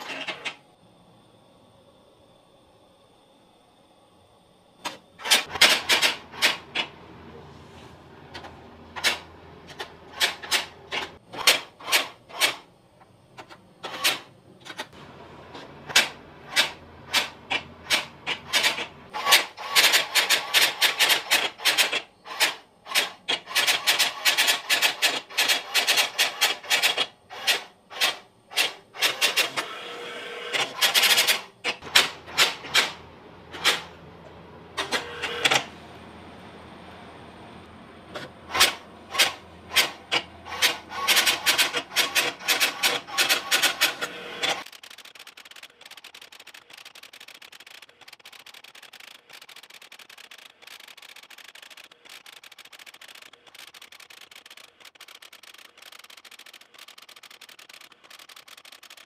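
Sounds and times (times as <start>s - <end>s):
electronic typewriter clacking: 4.9s - 6.9s, 9.0s - 12.7s, 15.9s - 29.6s, 30.6s - 33.9s, 38.5s - 59.0s.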